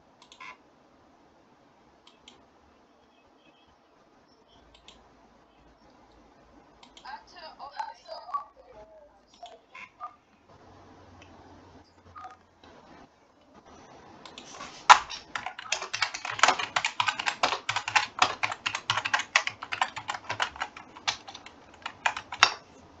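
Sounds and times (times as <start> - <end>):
keyboard typing: 14.2 - 22.9.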